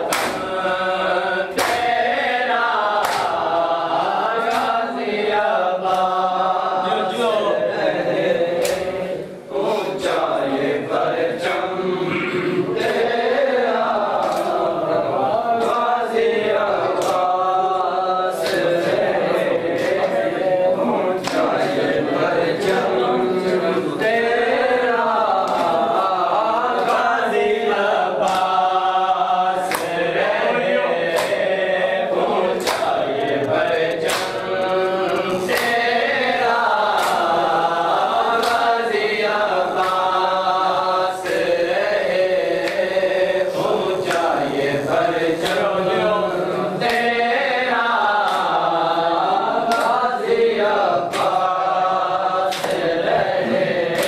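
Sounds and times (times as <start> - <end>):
hand slaps on bare chests: 0.0 - 0.6, 1.5 - 2.0, 2.9 - 3.6, 4.5 - 4.9, 5.8 - 6.2, 8.6 - 9.0, 14.1 - 14.6, 17.0 - 17.3, 18.4 - 18.8, 21.2 - 21.6, 25.4 - 25.9, 28.2 - 28.6, 29.7 - 30.0, 31.1 - 31.4, 32.6 - 33.0, 33.8 - 34.5, 35.5 - 35.9, 36.9 - 37.3, 38.4 - 38.8, 39.8 - 40.1, 44.1 - 44.3, 45.0 - 45.8, 48.2 - 48.6, 49.7 - 50.0, 51.1 - 51.6, 52.5 - 53.0
men chanting in chorus: 0.0 - 54.0.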